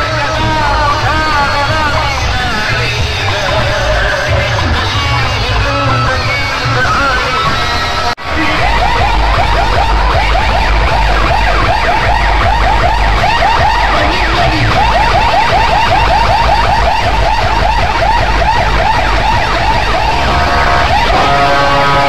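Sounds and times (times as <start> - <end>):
heavy sub-bass: 0.0 - 22.0
rising siren-like chirps: 6.4 - 22.0.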